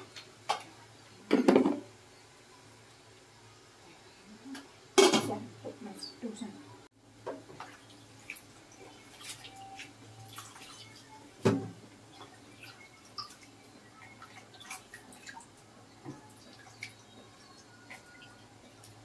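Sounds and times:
water dripping: 7.2s - 19.0s.

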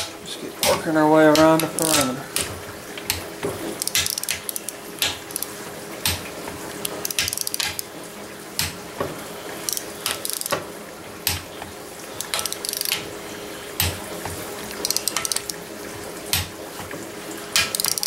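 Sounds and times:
wrench ratchet clicks: 1.6s - 2.0s, 3.8s - 5.5s, 6.8s - 7.9s, 9.7s - 10.6s, 12.2s - 13.0s, 14.7s - 15.6s, 17.6s - 18.0s
single sharp wrench clicks: 3.8s - 5.5s, 6.8s - 7.8s, 9.7s - 10.6s, 12.2s - 13.0s, 14.8s - 15.6s, 17.6s - 18.0s.

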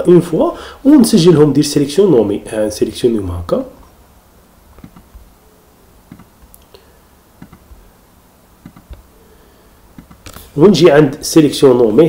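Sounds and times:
faint mouse clicks: 7.4s - 7.7s, 8.6s - 9.1s.

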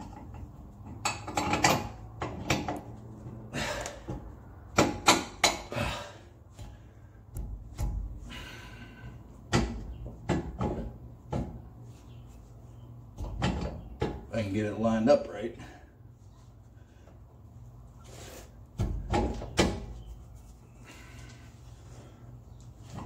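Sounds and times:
metallic knocks and clunks: 0.0s - 3.0s, 4.0s - 5.7s, 6.5s - 8.3s, 9.4s - 11.7s, 13.1s - 14.3s, 18.8s - 20.0s.

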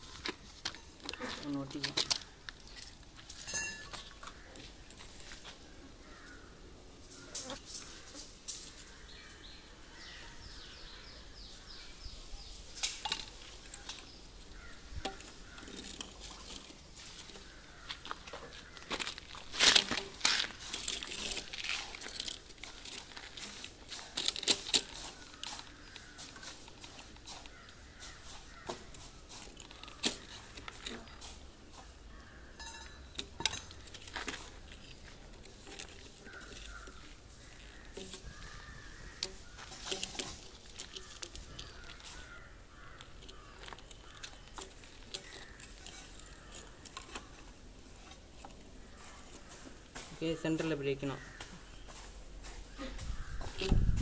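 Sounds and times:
pvc pipe fittings clicking and knocking: 32.6s - 48.6s.

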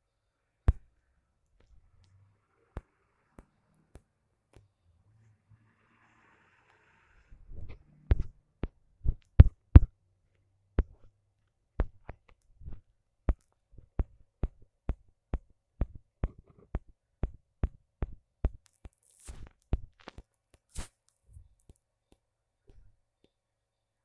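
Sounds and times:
fingertip tapping on touchscreen: 7.5s - 9.9s, 10.8s - 11.1s, 11.8s - 20.7s.

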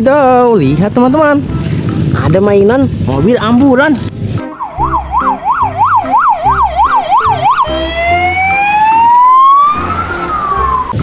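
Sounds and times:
ambulance siren: 4.4s - 11.0s.

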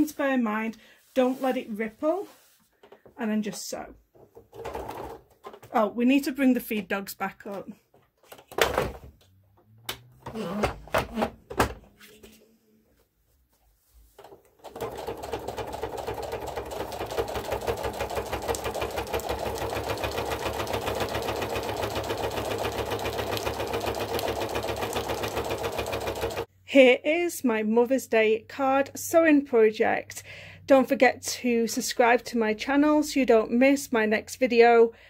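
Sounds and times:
sewing machine stitching: 4.6s - 5.2s, 14.2s - 26.5s.

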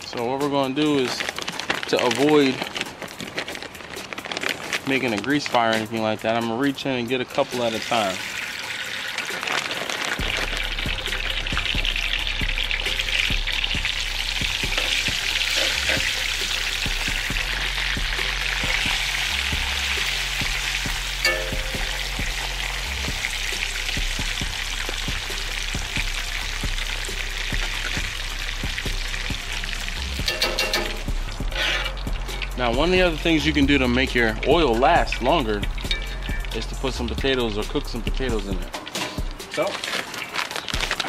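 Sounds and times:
fries sizzling in fat: 0.0s - 41.0s.

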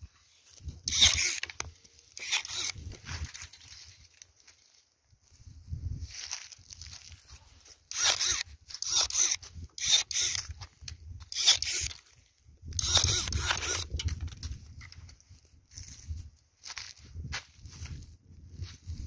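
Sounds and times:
footsteps crunching dry leaves: 0.2s - 9.6s, 14.6s - 19.0s.

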